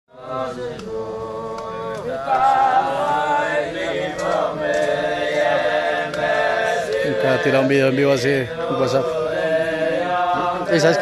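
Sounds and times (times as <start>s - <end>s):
men singing together: 0.1s - 11.0s.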